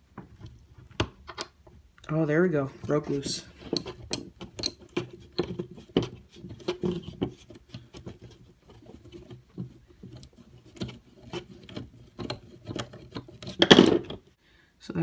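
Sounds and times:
screwdriver clicking and scraping: 0:03.1 - 0:14.2.

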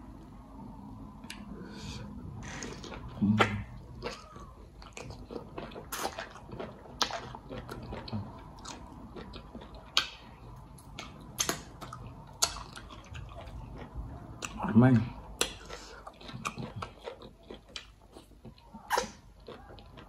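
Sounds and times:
person chewing with mouth smacks: 0:02.6 - 0:20.0.

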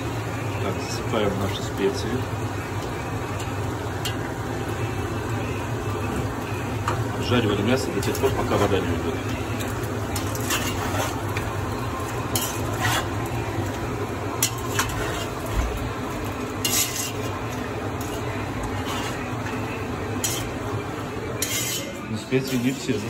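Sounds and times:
meat sizzling in a pot: 0:00.0 - 0:23.0
metal scraping and clinking on pot: 0:09.6 - 0:11.5, 0:12.1 - 0:13.3, 0:14.4 - 0:15.5, 0:16.6 - 0:19.3, 0:20.1 - 0:20.6, 0:21.4 - 0:23.0.

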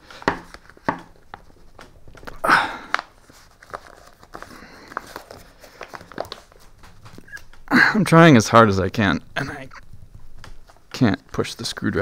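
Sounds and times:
fabric crinkling and rustling: 0:00.0 - 0:07.7, 0:09.8 - 0:12.0.

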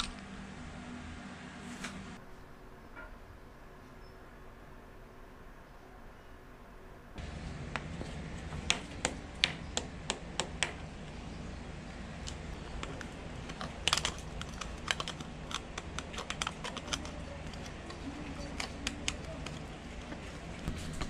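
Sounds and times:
screwdriver clicks and taps: 0:12.3 - 0:19.7.

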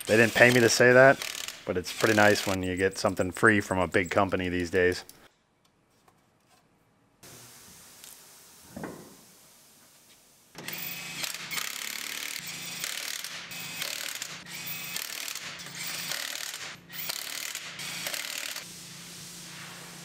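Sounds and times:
power wrench rattling: 0:00.0 - 0:03.1, 0:10.6 - 0:18.6.

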